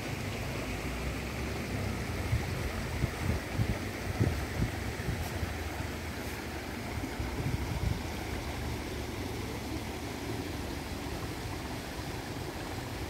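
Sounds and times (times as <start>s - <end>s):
stream rushing over rocks: 0.0s - 13.0s
wind rumble on microphone: 2.0s - 5.7s, 6.8s - 8.7s.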